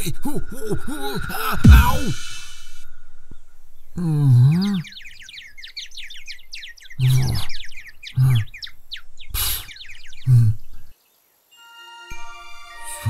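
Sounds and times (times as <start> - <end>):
breathy burst: 0.5 - 4.8
cartoon tweeting birds chirps: 3.4 - 11.2.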